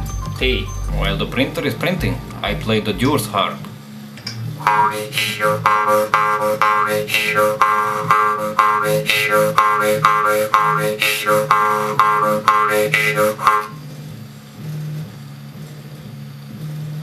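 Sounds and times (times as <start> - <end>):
jew's harp twanging: 4.6 - 13.8.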